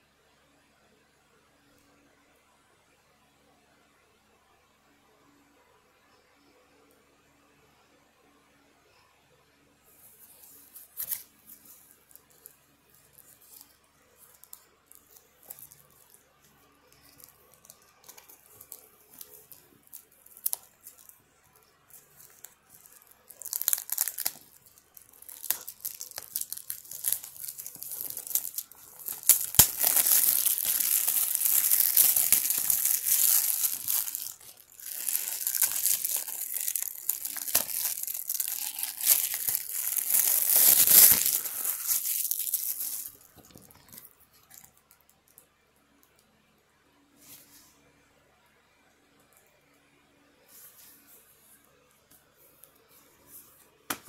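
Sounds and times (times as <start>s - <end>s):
plastic wrap tearing and crinkling: 10.4s - 44.8s.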